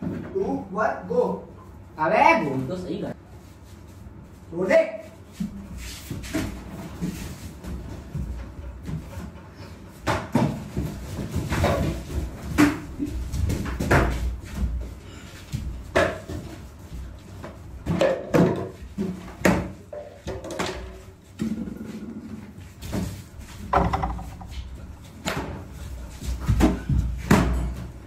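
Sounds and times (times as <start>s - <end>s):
people scuffling on hard floor: 2.5s - 28.0s
sharp knocks and thumps: 23.0s - 25.6s.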